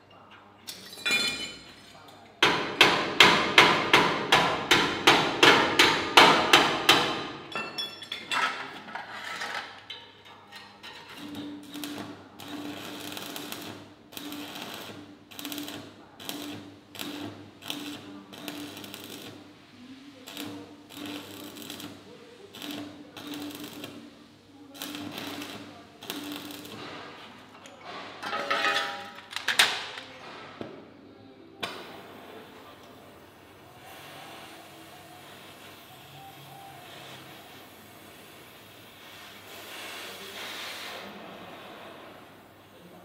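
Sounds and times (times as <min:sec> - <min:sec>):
hammer striking steel: 0:02.4 - 0:08.3
arc welding crackle and sizzle: 0:10.9 - 0:27.6, 0:31.8 - 0:43.0.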